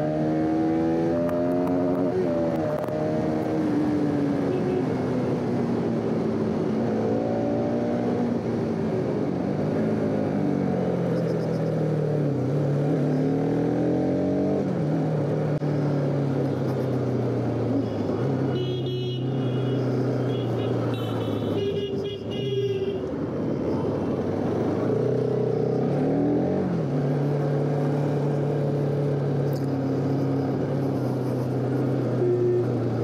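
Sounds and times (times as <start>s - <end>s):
motorcycle horn beeping: 18.5s - 23.0s.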